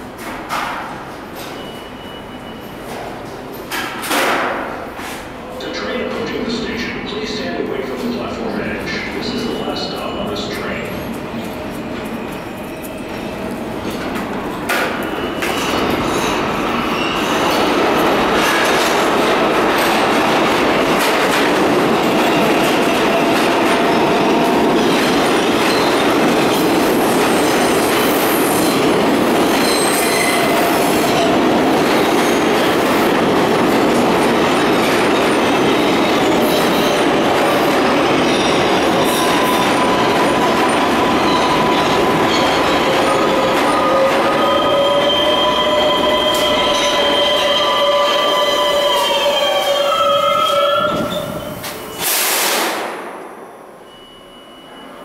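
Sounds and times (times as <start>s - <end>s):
subway train running past: 0.0s - 55.0s
train wheel squeal: 1.4s - 3.0s, 14.7s - 17.7s, 29.5s - 31.2s, 38.1s - 52.5s, 53.8s - 55.0s.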